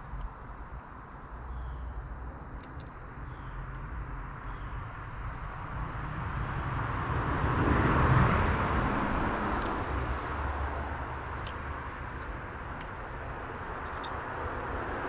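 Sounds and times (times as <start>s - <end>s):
high insect drone: 0.0s - 15.0s
car passing: 4.2s - 15.0s.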